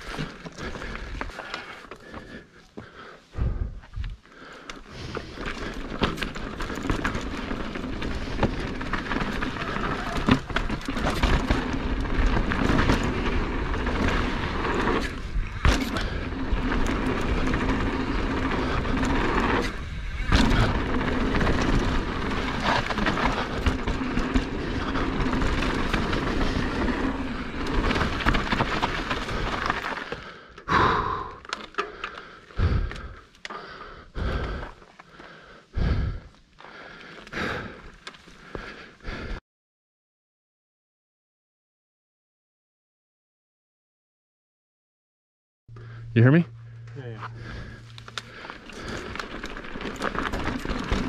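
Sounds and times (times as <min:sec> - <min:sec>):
bike knocking and rattling: 0:04.5 - 0:36.0, 0:45.8 - 0:51.0
tyre and wind rush: 0:05.0 - 0:29.8.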